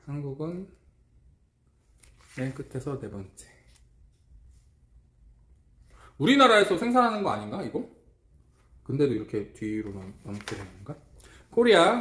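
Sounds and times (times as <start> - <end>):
paper rustling: 1.9 - 2.9, 9.8 - 11.4.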